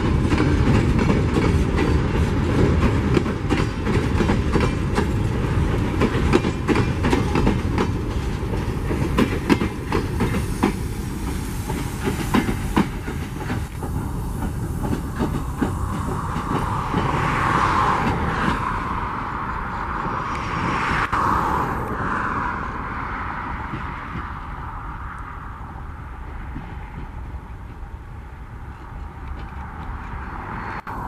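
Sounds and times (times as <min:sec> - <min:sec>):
train wheels clattering over rail joints: 0:00.0 - 0:18.9, 0:28.7 - 0:30.3.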